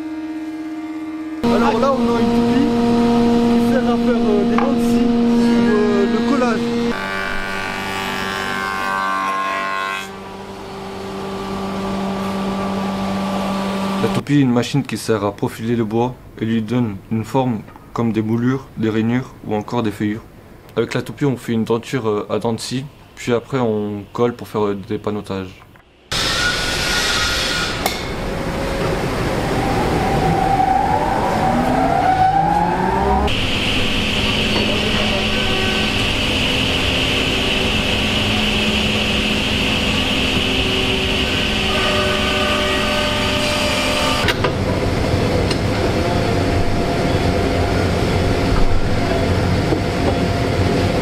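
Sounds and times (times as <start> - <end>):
spindle moulder whining: 0.0 - 14.1, 26.1 - 51.0
woodworking machinery noise: 0.0 - 14.2, 26.1 - 51.0.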